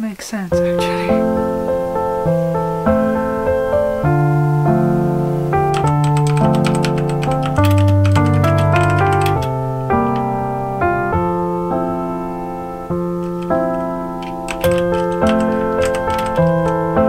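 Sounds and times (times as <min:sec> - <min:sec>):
piano music: 0:00.5 - 0:17.0
computer keyboard typing: 0:05.6 - 0:10.4, 0:13.2 - 0:17.0.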